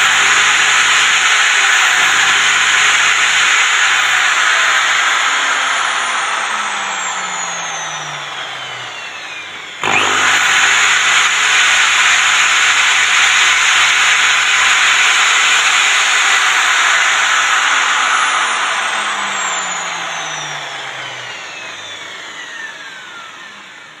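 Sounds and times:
electric drill running: 0.0 - 24.0.

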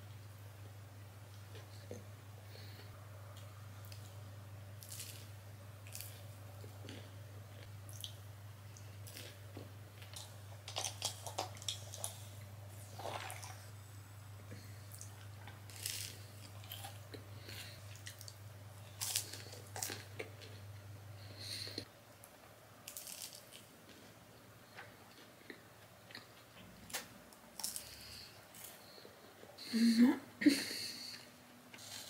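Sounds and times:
low steady hum: 0.0 - 32.0
person chewing food: 4.8 - 13.7, 14.5 - 20.7, 22.8 - 29.5.

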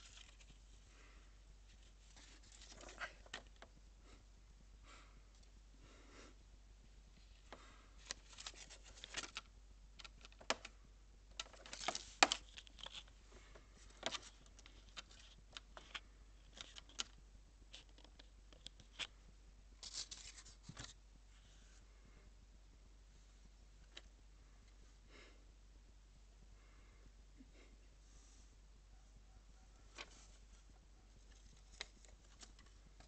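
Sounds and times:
faint rustling: 0.0 - 4.2, 28.0 - 33.0
small clicks and scrapes: 11.3 - 19.2.

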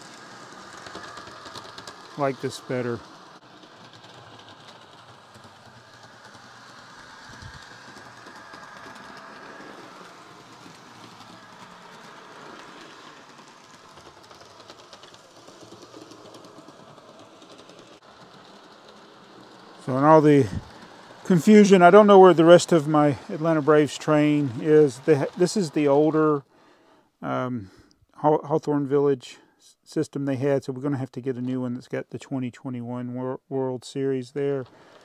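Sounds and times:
model train motor whir: 0.0 - 26.1, 34.6 - 35.0.

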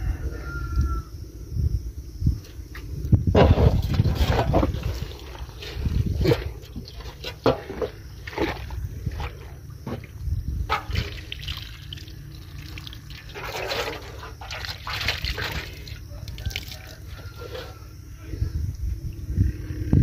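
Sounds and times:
muddy water splashing: 3.4 - 17.8.

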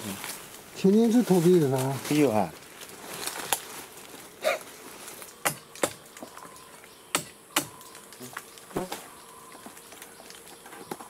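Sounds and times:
faint insect hum: 0.0 - 11.0.

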